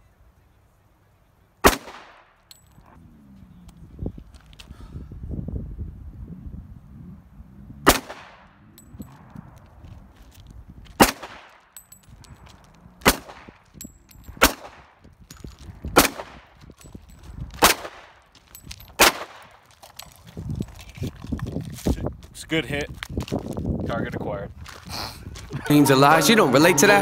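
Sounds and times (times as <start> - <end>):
handgun single shots with echo: 1.6 - 2.3, 7.9 - 8.4, 11.0 - 11.6, 13.0 - 13.5, 16.0 - 16.4, 19.0 - 19.5.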